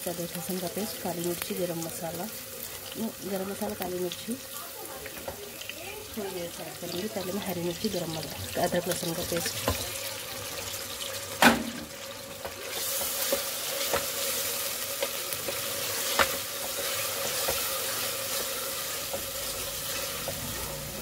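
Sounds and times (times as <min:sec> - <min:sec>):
onions sizzling in hot oil: 0:00.0 - 0:21.0
sharp knock: 0:11.4 - 0:11.9.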